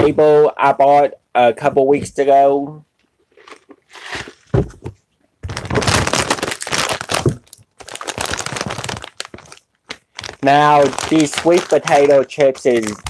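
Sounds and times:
chip bag crinkling: 5.4 - 13.0.

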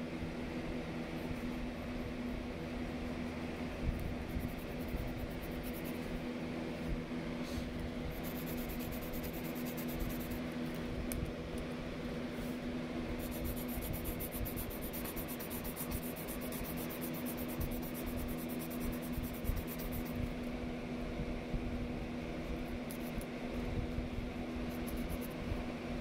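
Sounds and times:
low hum: 0.0 - 26.0
pencil scratching on paper: 4.2 - 6.2, 8.1 - 10.4, 13.2 - 20.2, 24.6 - 25.4.

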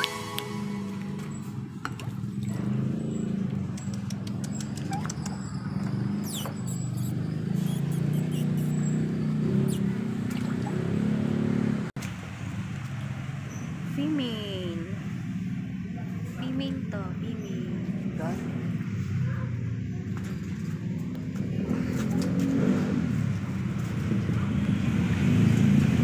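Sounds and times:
low hum: 0.0 - 2.8.

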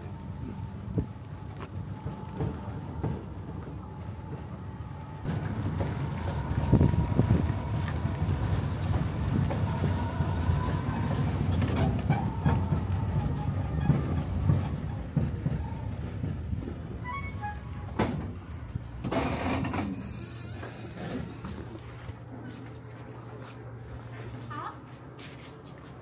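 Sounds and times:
bus engine rumble: 0.0 - 26.0
wind: 0.0 - 26.0
rattles and knocks: 11.5 - 21.8.

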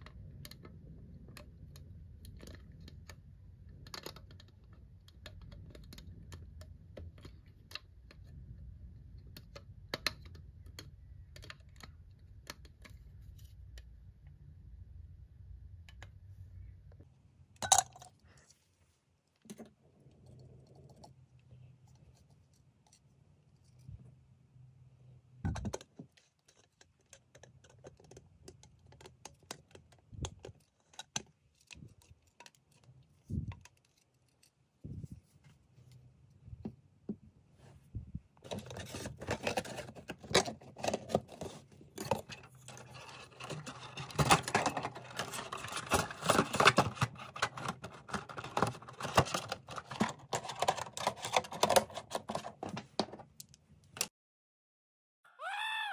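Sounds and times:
plastic clicks and knocks: 25.4 - 32.8.

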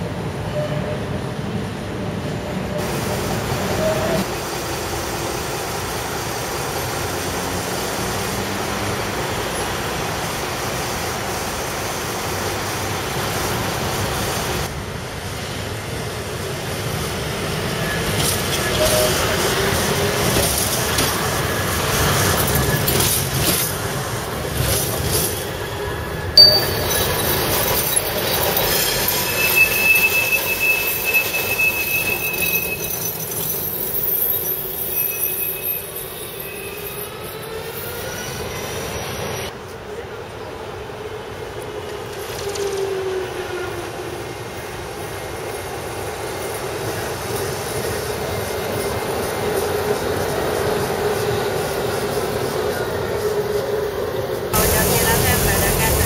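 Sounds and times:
tram wheels rumbling on rails: 0.0 - 56.0
high wheel squeals: 24.6 - 39.5.

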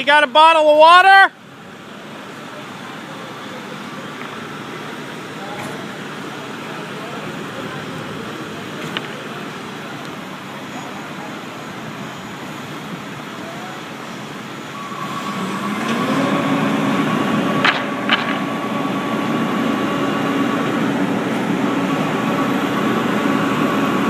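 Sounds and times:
engine and hydraulics whine: 0.0 - 24.0
sharp knocks: 17.6 - 18.5.

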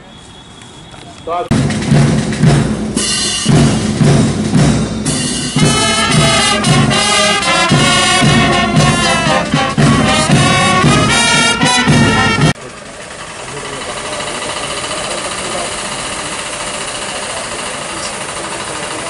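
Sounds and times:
brass band playing a march: 1.5 - 12.6
steady drum beat: 1.5 - 12.6.

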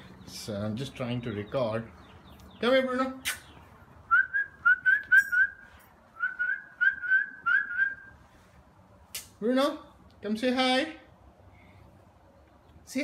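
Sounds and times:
person whistling short high notes: 4.1 - 8.1.

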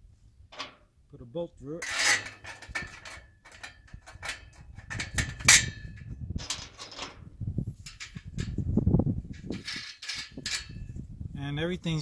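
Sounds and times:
metal rails and bolt clinking: 0.5 - 0.9, 1.8 - 7.2, 7.8 - 8.6, 9.3 - 10.9.

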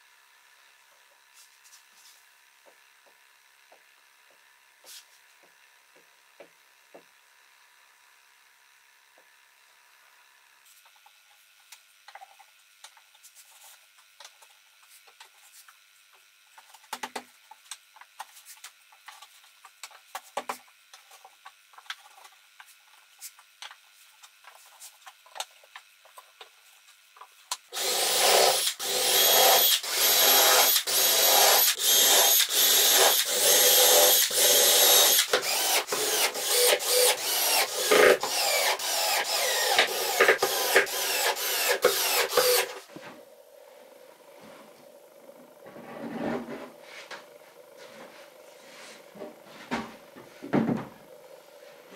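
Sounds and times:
cordless drill driving screws: 27.7 - 42.9.

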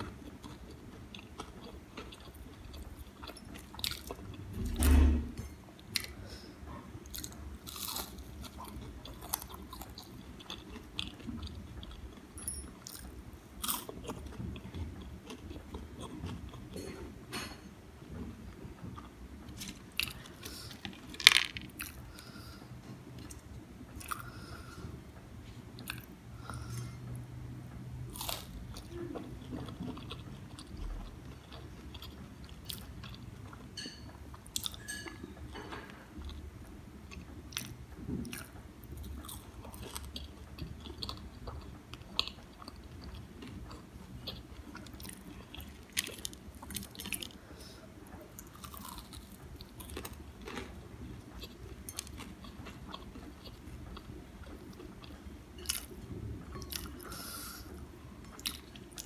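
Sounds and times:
crunching and chewing fried food: 0.0 - 4.8, 6.8 - 17.1, 18.4 - 24.8, 25.4 - 59.0.

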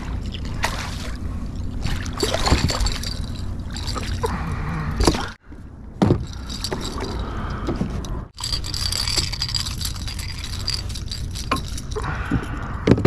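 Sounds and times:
pliers and hooks rattling: 2.1 - 4.3, 6.0 - 13.0.

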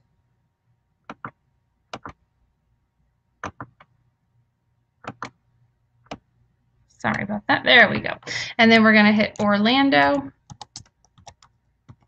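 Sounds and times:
computer mouse clicking: 1.1 - 2.2, 5.0 - 5.4, 10.4 - 12.0.

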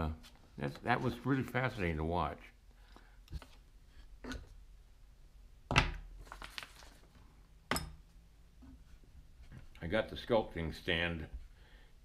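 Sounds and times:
paper sheets rustling: 6.2 - 7.2.

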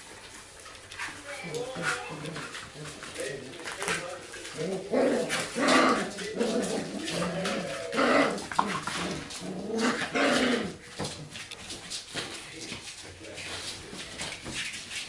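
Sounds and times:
puppies growling and yapping: 0.4 - 11.6.

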